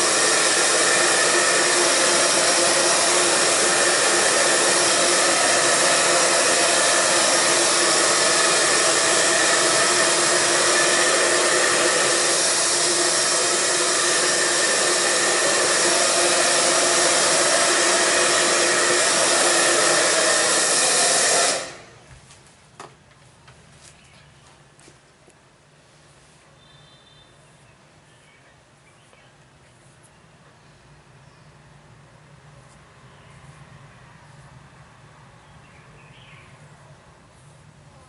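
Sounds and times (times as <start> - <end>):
hair dryer blowing: 0.0 - 22.1.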